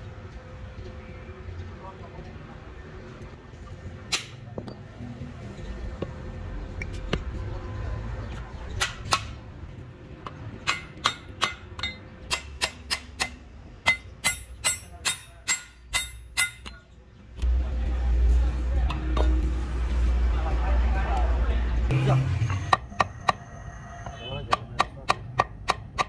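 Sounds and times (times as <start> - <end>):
hammer striking metal rivets: 10.6 - 16.9.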